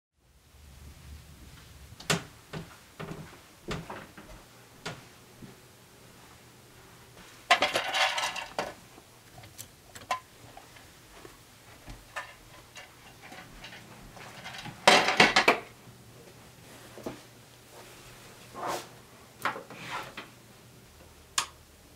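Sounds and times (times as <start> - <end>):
footsteps: 1.2 - 14.9
thread spools clattering: 7.5 - 10.8, 11.9 - 15.7.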